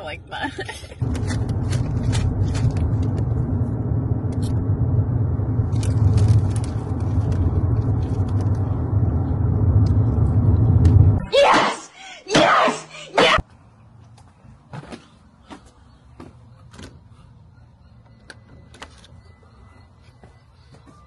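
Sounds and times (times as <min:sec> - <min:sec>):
car interior rumble: 0:00.6 - 0:11.2.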